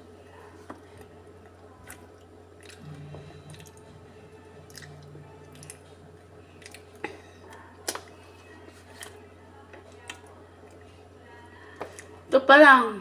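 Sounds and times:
low hum: 0.9s - 9.6s.

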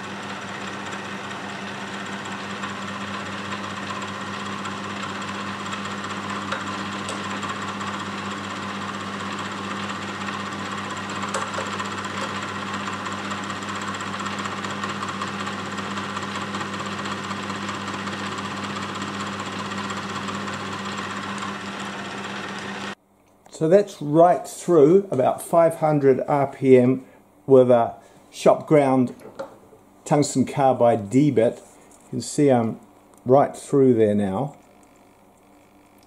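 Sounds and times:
milling machine motor hum: 0.0s - 23.0s.

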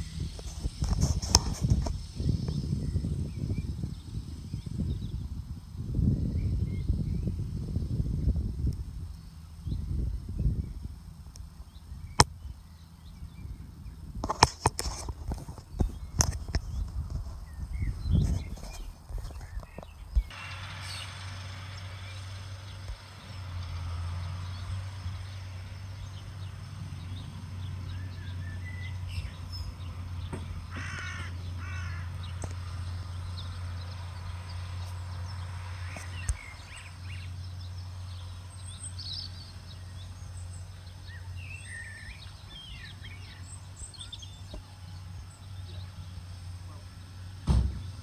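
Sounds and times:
birds calling: 0.0s - 48.0s
distant tractor hum: 0.0s - 48.0s.

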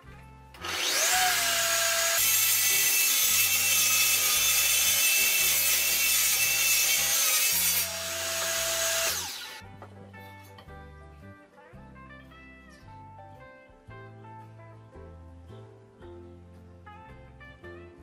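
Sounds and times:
saw blade whining: 0.6s - 9.6s
table saw cutting board: 0.6s - 9.6s.

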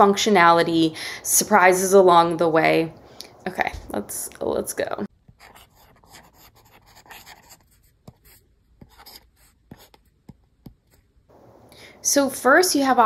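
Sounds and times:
stylus scratching on tablet screen: 5.3s - 11.2s.

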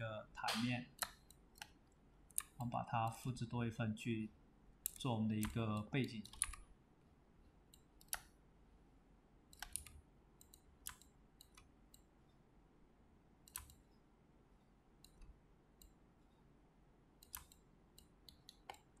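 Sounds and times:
computer mouse clicking: 0.6s - 3.2s, 4.8s - 6.7s, 7.7s - 8.4s, 9.5s - 12.1s, 13.4s - 14.0s, 15.0s - 16.0s, 17.2s - 19.0s.

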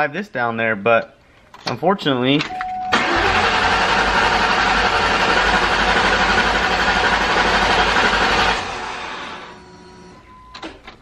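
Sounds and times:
car engine cranking on starter: 2.9s - 9.6s.

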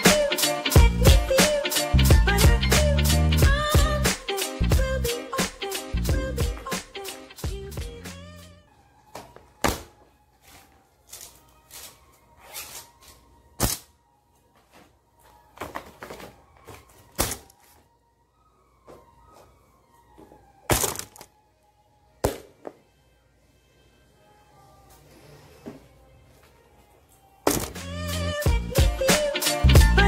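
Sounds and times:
faint music: 0.0s - 30.0s
books thudding on a desk: 9.2s - 10.0s.

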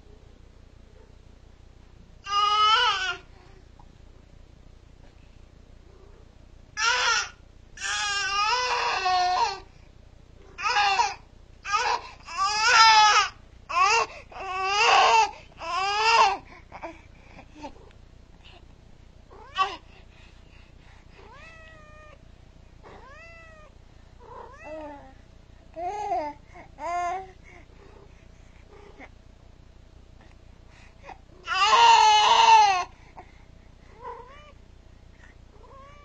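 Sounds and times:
baby crying: 2.2s - 3.3s, 6.8s - 9.6s, 31.4s - 32.9s
cat meowing: 22.8s - 24.8s.

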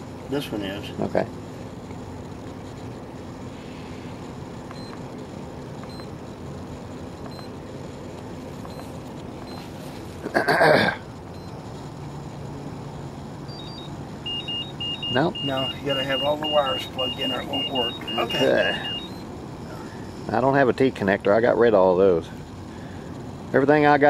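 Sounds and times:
steady low hum: 0.0s - 24.0s
battery charger beeps: 4.7s - 5.0s, 5.8s - 6.2s, 7.2s - 7.6s, 8.6s - 9.8s, 11.4s - 11.6s, 13.4s - 19.3s.

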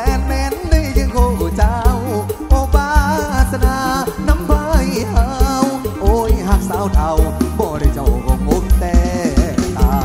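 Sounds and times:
bass: 0.0s - 10.0s
drum kit beat: 0.0s - 10.0s
ornamented melody line: 0.0s - 10.0s.

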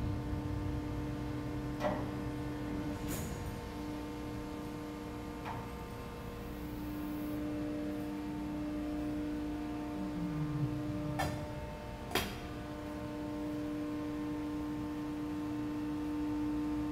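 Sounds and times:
machinery hum: 0.0s - 16.9s
low falling tone: 9.8s - 11.8s.

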